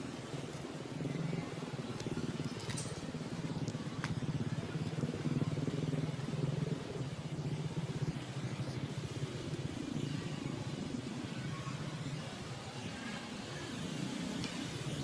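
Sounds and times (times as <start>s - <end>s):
engine idling: 1.0s - 12.5s.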